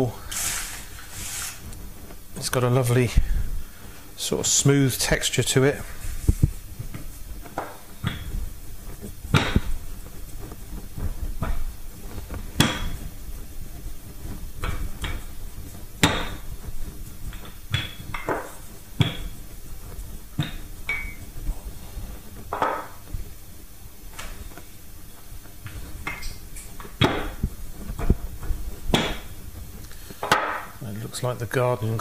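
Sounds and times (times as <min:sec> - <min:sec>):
rolling pin rolling dough on board: 0:00.0 - 0:30.8
sharp irregular knocks: 0:26.0 - 0:28.2, 0:28.9 - 0:29.4.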